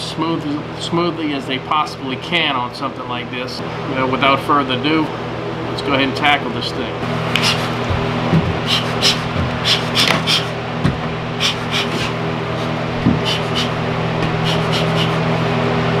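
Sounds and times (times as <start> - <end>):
steady low hum: 0.0 - 16.0
bellows puffing air: 7.3 - 10.6, 11.3 - 15.3.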